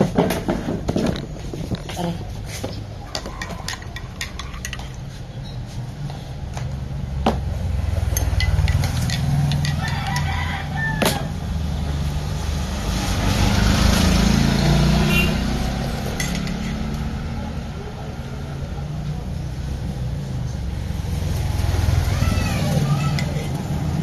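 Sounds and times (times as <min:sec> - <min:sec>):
metal spoon clinking on ceramic mug: 0:03.3 - 0:05.0, 0:08.1 - 0:10.3
rooster crowing: 0:09.6 - 0:11.4.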